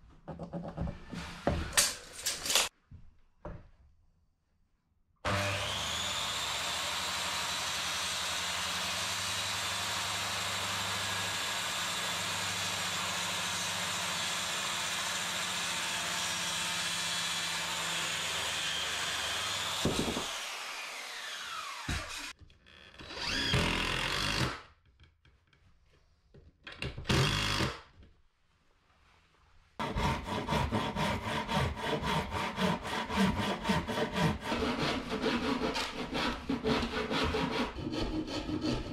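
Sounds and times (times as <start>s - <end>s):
circular saw cutting wood: 5.2s - 22.4s, 23.0s - 24.6s, 29.8s - 38.9s.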